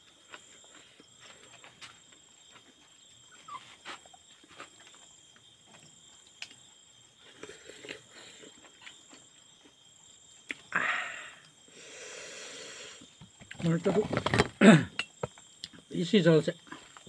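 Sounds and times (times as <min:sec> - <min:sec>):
man chewing and lip smacking: 0:10.4 - 0:10.7.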